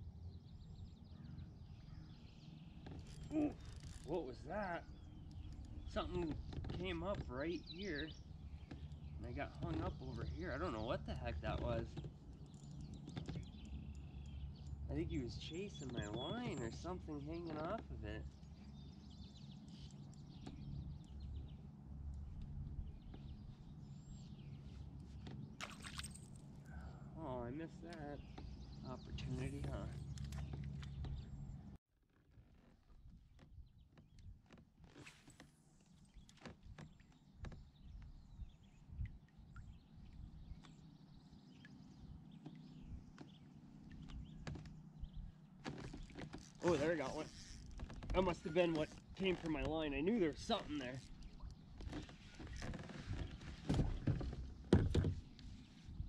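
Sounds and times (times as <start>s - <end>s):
faint bird chirps: 0.5s - 21.6s
low wind rumble: 37.4s - 41.2s.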